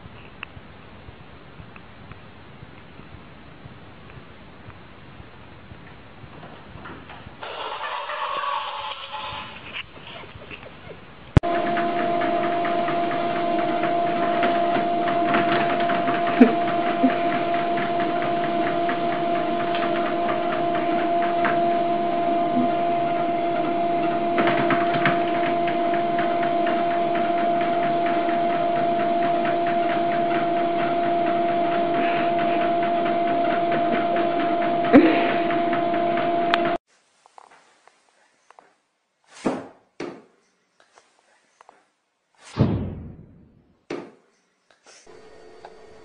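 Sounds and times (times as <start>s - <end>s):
treadmill belt whirring: 11.4s - 36.8s, 45.0s - 46.0s
treadmill motor hum: 11.4s - 36.8s, 45.0s - 46.0s.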